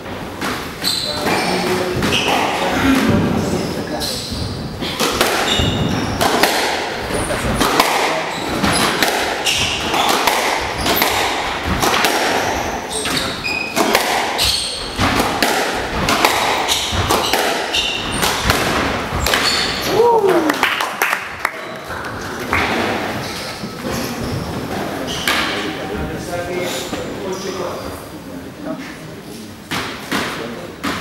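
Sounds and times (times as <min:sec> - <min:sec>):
shoes squeaking on wooden floor: 0:00.7 - 0:06.4, 0:07.0 - 0:20.0, 0:21.6 - 0:25.8
squash ball struck by rackets: 0:05.0 - 0:19.8.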